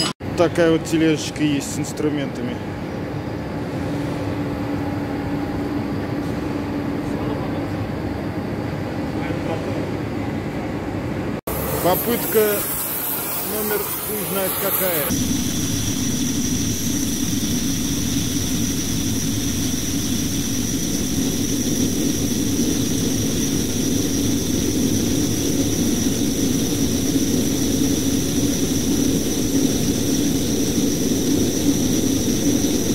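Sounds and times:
gas torch rushing with whistle: 0:11.5 - 0:32.9.

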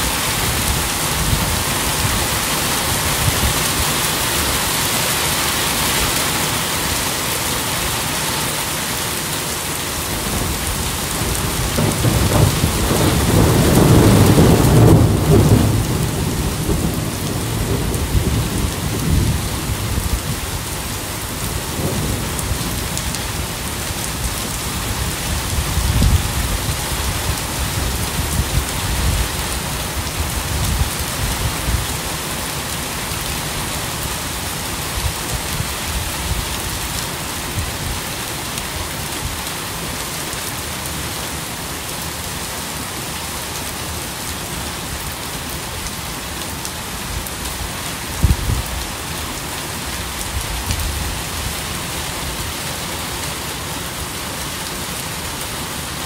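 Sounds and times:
steady rain: 0:00.0 - 0:56.0
thunder rolling: 0:10.2 - 0:20.4.

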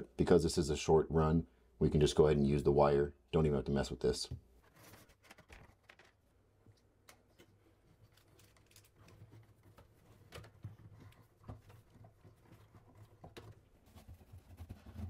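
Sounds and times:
cable scraping and rustling: 0:04.6 - 0:06.2, 0:07.2 - 0:15.0.

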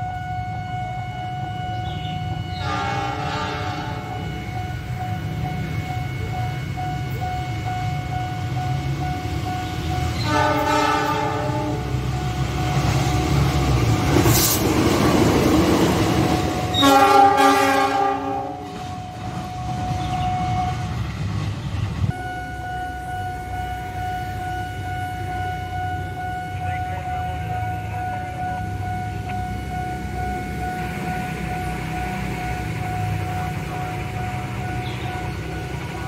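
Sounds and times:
level-crossing alarm tone: 0:00.0 - 0:14.1, 0:15.0 - 0:21.2, 0:22.1 - 0:36.0
locomotive engine rumble: 0:00.0 - 0:36.0
wheels rushing on rail: 0:00.0 - 0:36.0
train horn blasts: 0:01.5 - 0:05.5, 0:09.6 - 0:12.3, 0:16.6 - 0:19.1.

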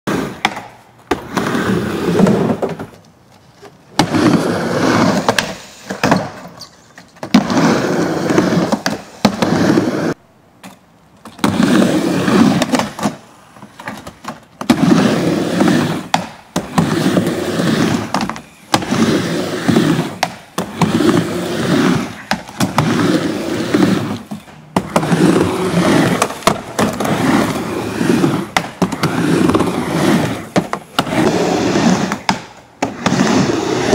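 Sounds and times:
skateboard wheels rumbling on ramp: 0:00.1 - 0:03.0, 0:03.7 - 0:10.2, 0:11.3 - 0:33.9
skateboard clacking on ramp: 0:00.3 - 0:01.4, 0:12.4 - 0:33.9.

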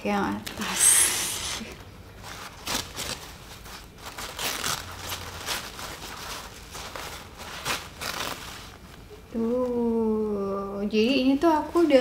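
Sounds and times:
paper rustling and crinkling: 0:02.2 - 0:09.8.

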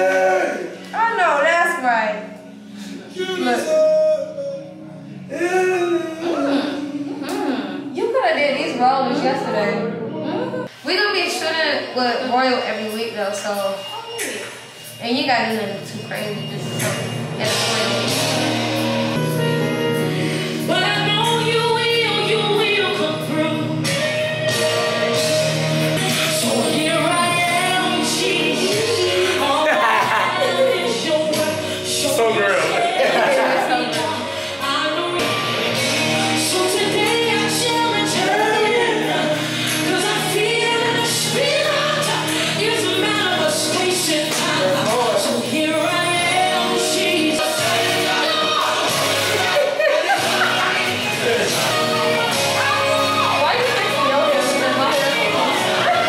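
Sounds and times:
song with sung vocals: 0:00.0 - 0:11.0, 0:12.8 - 0:56.0
person singing long notes: 0:03.2 - 0:07.9, 0:17.5 - 0:49.6
steady bass: 0:15.5 - 0:56.0.

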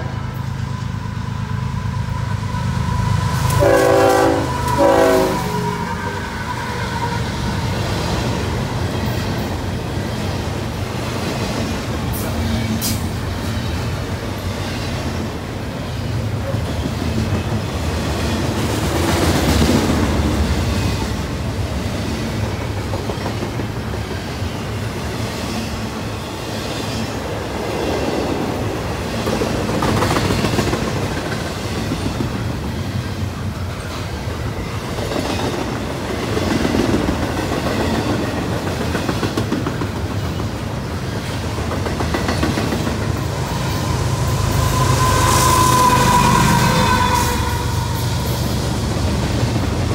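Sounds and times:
diesel locomotive: 0:00.0 - 0:49.9
freight train wheels rumbling: 0:00.0 - 0:49.9
clickety-clack over rail joints: 0:08.6 - 0:25.7, 0:26.5 - 0:43.9.

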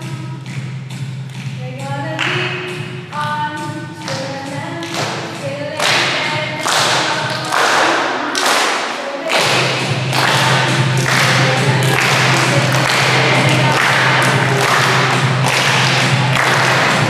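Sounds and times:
heavy beat: 0:00.0 - 0:17.0
pitched melody: 0:09.3 - 0:17.0.

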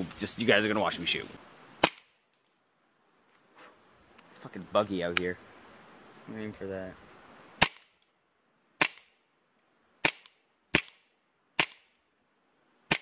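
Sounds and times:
airsoft pistol shots: 0:01.8 - 0:02.1, 0:07.6 - 0:07.9, 0:10.0 - 0:11.0, 0:11.6 - 0:11.8.

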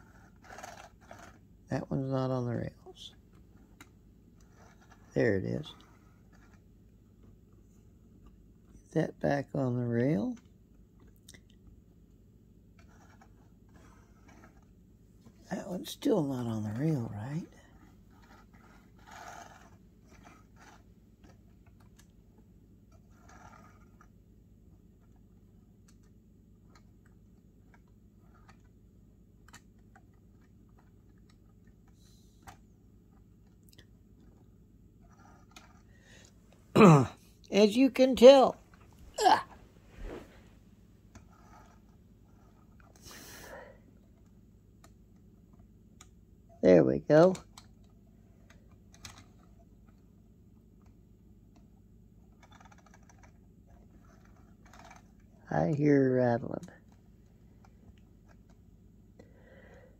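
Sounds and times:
low steady hum: 0:00.0 - 0:59.9
plastic toy train clicking: 0:48.9 - 0:49.5, 0:52.4 - 0:55.3.

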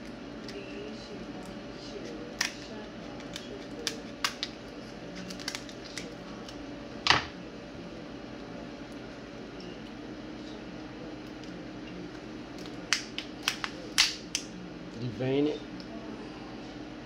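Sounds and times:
lobster shell cracking: 0:02.0 - 0:06.6, 0:12.5 - 0:14.5.

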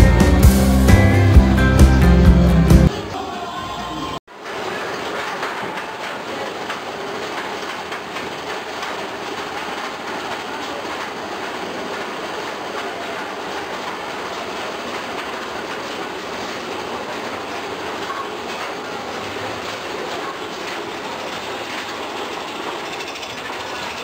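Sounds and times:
roller coaster clattering on track: 0:04.4 - 0:24.0.

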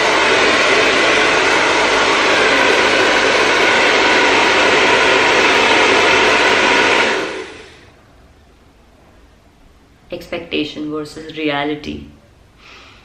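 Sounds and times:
hair dryer blowing air: 0:00.0 - 0:07.9.

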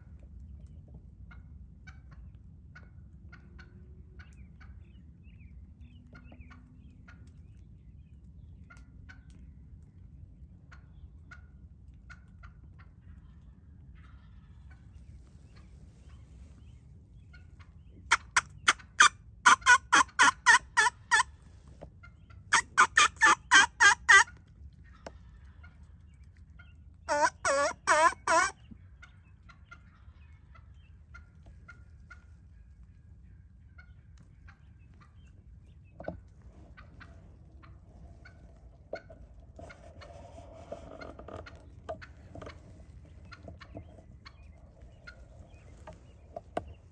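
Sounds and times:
turkey gobbling: 0:01.3 - 0:05.0, 0:10.7 - 0:46.9
turkey hen yelps: 0:17.3 - 0:25.9, 0:26.6 - 0:32.8, 0:36.0 - 0:46.4.

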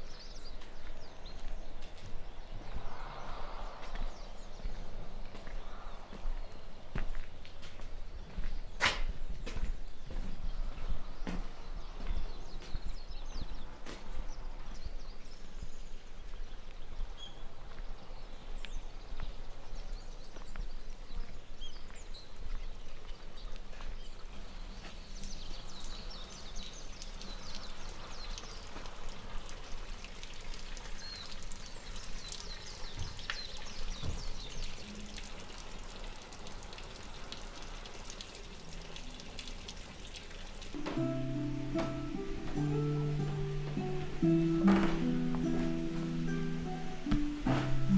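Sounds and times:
steady background hiss: 0:40.8 - 0:47.9.

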